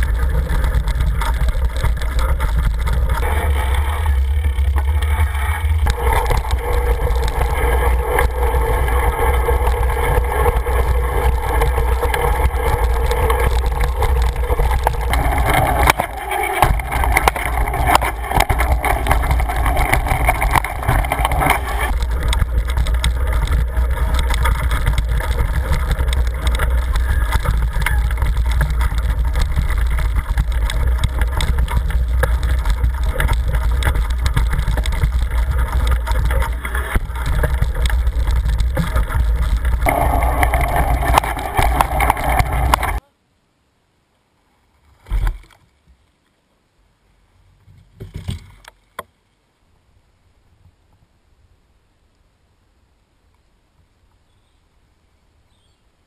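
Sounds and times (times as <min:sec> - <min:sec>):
bike rattling and knocking: 0:00.0 - 0:43.0
bike rumbling on dirt trail: 0:00.0 - 0:43.1.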